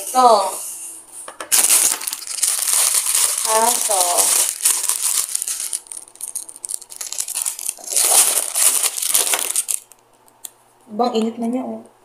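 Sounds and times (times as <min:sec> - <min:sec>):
plastic packaging crinkling: 0:01.4 - 0:10.0.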